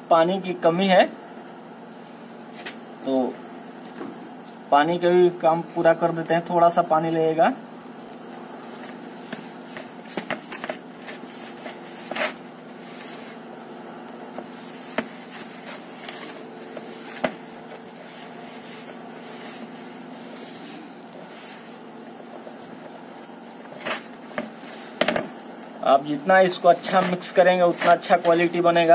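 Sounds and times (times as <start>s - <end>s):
low background hum: 0.0s - 28.9s.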